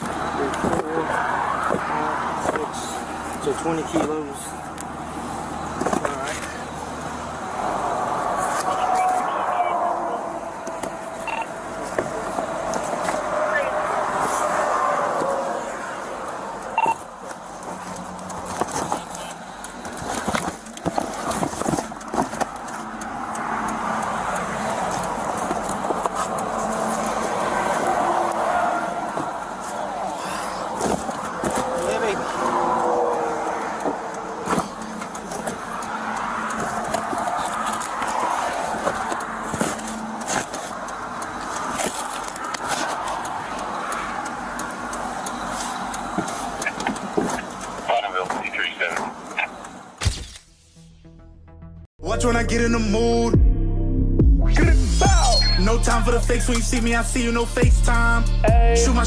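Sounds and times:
traffic noise: 0.0 - 53.5, 54.2 - 59.0
cardboard boxes knocking and rustling: 18.4 - 22.8, 30.8 - 31.9, 33.8 - 35.6, 36.6 - 40.7.

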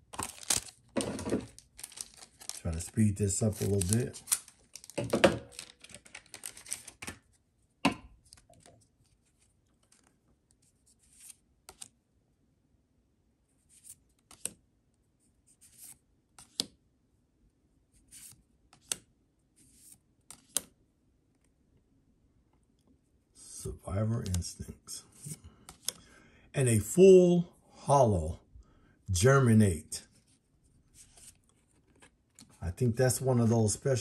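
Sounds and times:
cards rustling: 0.0 - 7.4, 8.2 - 11.9, 30.1 - 33.5.

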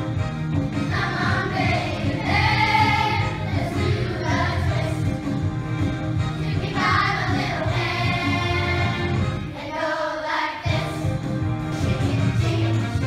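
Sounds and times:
musical accompaniment with bass: 0.0 - 10.0, 10.6 - 13.0
children singing in unison: 0.9 - 5.0, 6.5 - 11.0.

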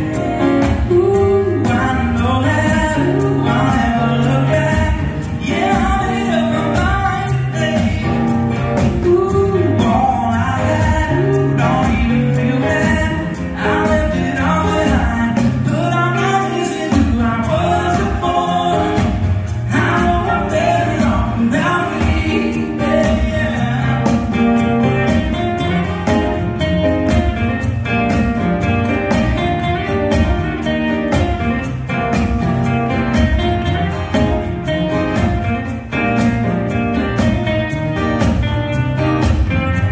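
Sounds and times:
acoustic guitars strumming: 0.0 - 39.9
man singing lead vocal: 0.1 - 26.4.

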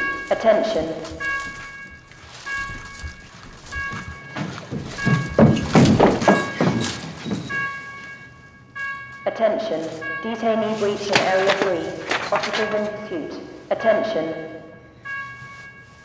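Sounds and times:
heavy thuds and scuffling: 0.0 - 8.2, 10.6 - 12.9.

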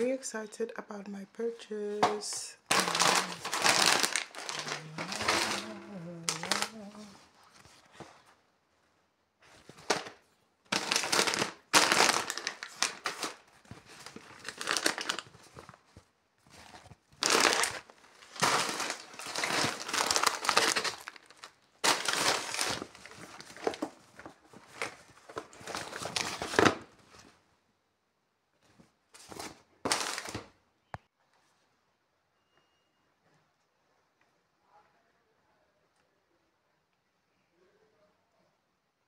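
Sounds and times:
plastic packets crinkling: 2.2 - 8.2, 9.5 - 27.0, 29.2 - 30.6.

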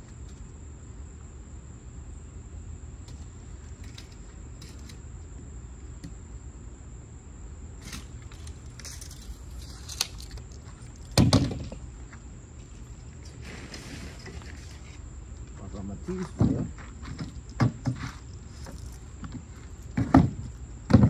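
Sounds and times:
loud close bump: 11.1 - 11.8.

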